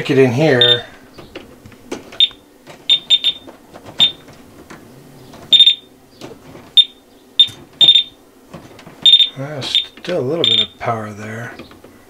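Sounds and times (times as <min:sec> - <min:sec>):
voltage tester beeping: 0:00.6 - 0:00.9, 0:02.2 - 0:04.2, 0:05.5 - 0:05.9, 0:06.8 - 0:08.2, 0:09.0 - 0:10.8.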